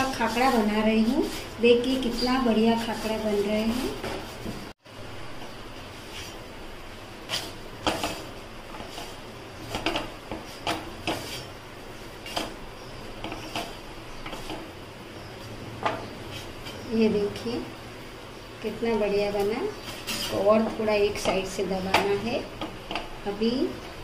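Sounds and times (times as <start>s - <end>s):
cloth scraping rustles: 19.8s - 20.5s.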